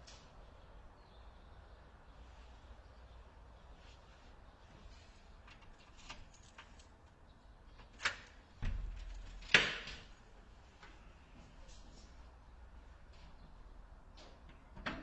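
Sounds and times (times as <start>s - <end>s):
door thud: 8.6s - 9.9s.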